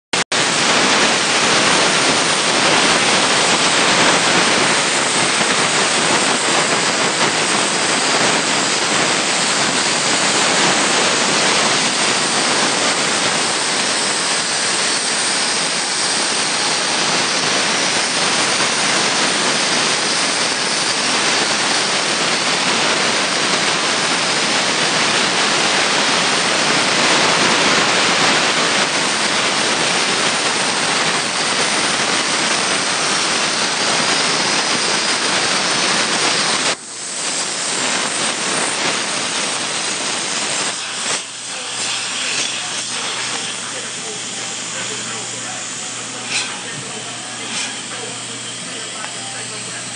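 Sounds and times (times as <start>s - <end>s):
plasma cutter hissing: 0.4s - 49.9s.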